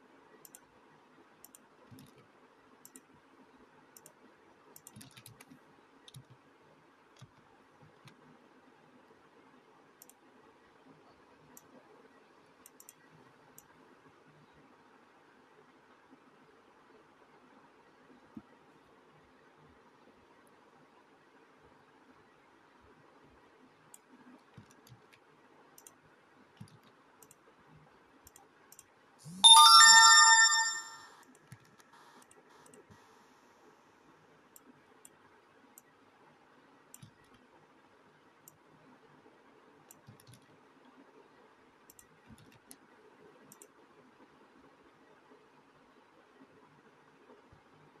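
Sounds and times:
phone notification chime: 29.4s - 31.1s.

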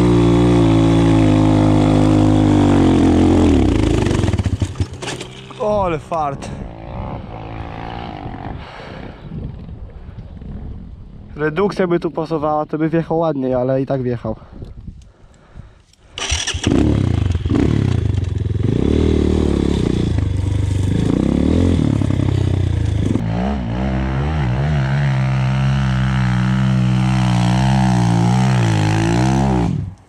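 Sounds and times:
motorbike engine revving: 0.0s - 8.6s, 16.2s - 30.0s.

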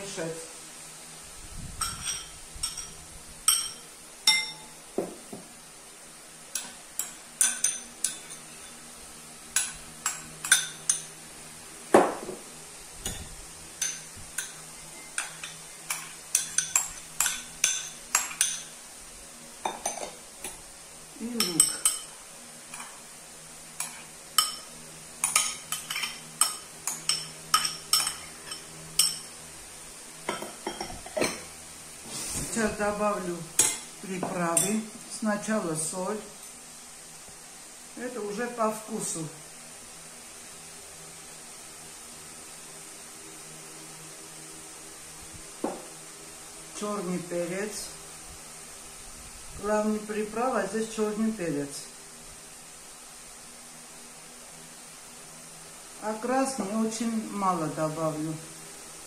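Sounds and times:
metal spoon clinking on ceramic bowls: 1.8s - 4.7s, 6.5s - 8.8s, 9.6s - 11.1s, 13.1s - 18.7s, 21.4s - 23.0s, 23.8s - 29.3s, 30.3s - 31.5s.

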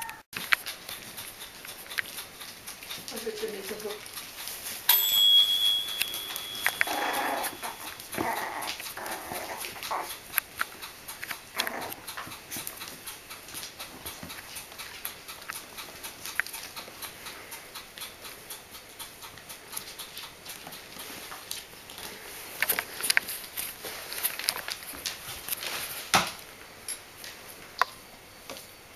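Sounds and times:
high-pitched squeak: 5.4s - 8.6s
puppies growling and yipping: 6.6s - 15.4s.

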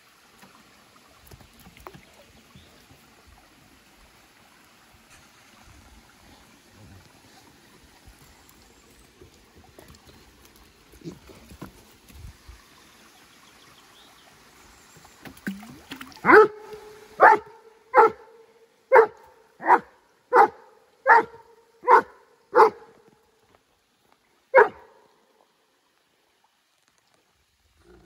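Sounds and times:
dog barking: 16.2s - 16.6s, 17.2s - 22.9s, 24.5s - 24.9s.

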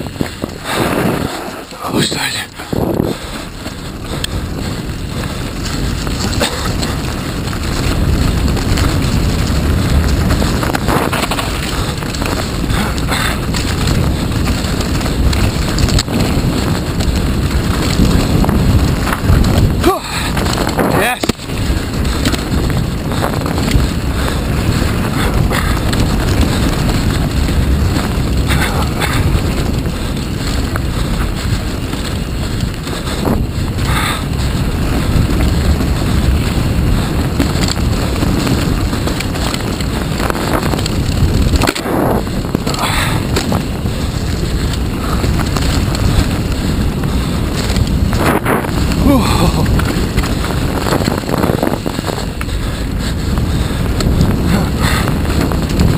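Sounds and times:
bike knocking and rattling: 0.0s - 55.9s
tyres rolling over dirt: 0.0s - 55.9s
wind on microphone: 0.0s - 55.9s.

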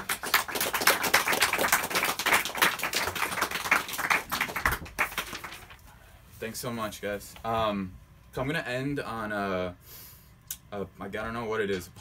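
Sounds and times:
small audience clapping: 0.0s - 5.8s.

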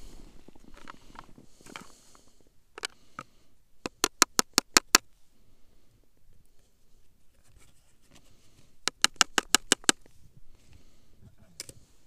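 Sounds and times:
sharp clicks: 3.8s - 5.0s, 8.8s - 10.1s.

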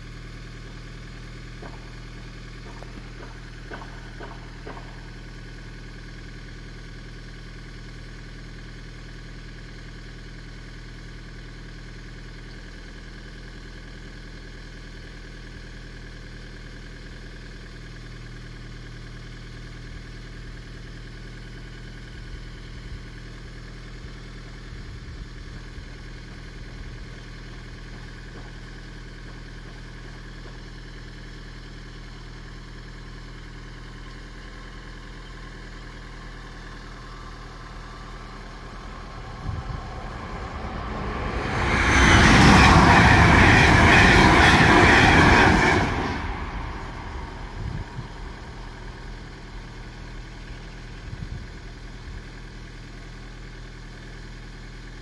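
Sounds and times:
electric train passing at speed: 2.6s - 5.4s, 36.4s - 50.4s
low steady hum: 35.1s - 52.2s.

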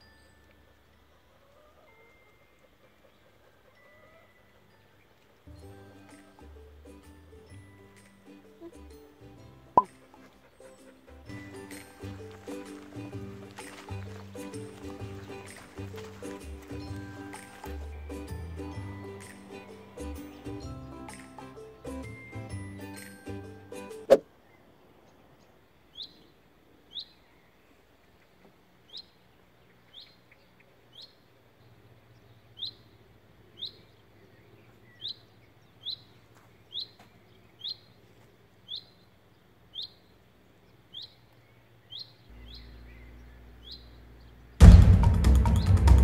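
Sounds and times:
background music: 4.7s - 24.2s, 44.6s - 46.0s
small bird chirping: 25.4s - 44.6s.

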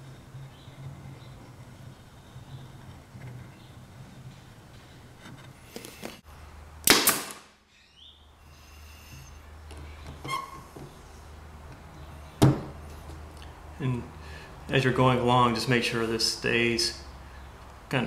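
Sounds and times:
pneumatic nailer firing: 6.8s - 7.5s.

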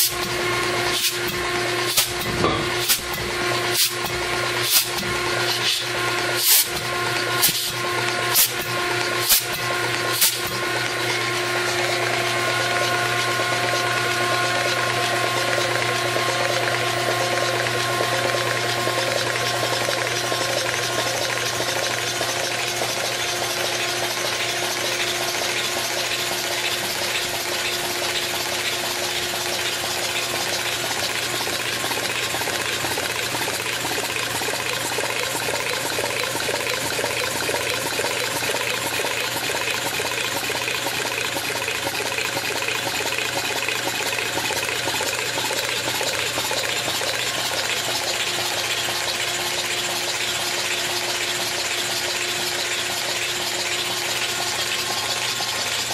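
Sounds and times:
oil spraying and splashing: 3.7s - 5.8s, 6.4s - 11.0s.

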